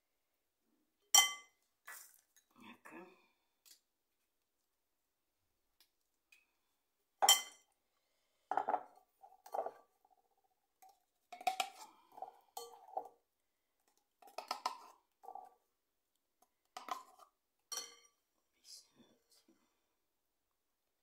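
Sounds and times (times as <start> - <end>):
utensils and dishes clinking: 17.7 - 18.2.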